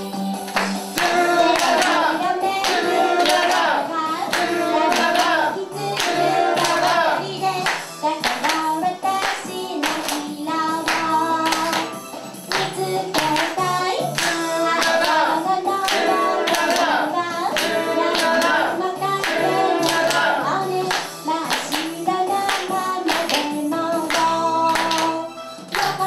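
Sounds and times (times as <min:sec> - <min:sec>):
backing track with steady beat: 0:00.0 - 0:26.0
woman singing into microphone: 0:03.8 - 0:06.0, 0:07.1 - 0:11.9, 0:12.6 - 0:26.0.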